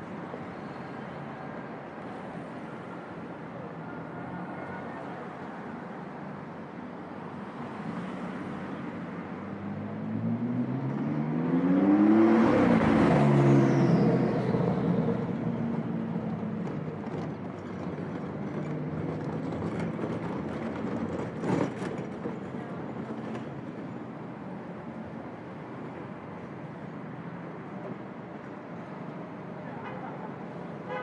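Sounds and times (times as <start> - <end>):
street traffic noise: 0.0 - 31.0
car accelerating past: 9.8 - 15.3.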